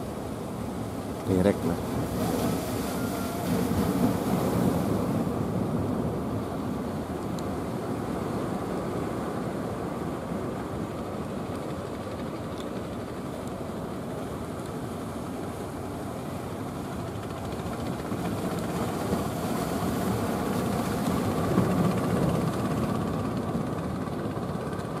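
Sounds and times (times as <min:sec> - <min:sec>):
wind: 0:00.0 - 0:25.0.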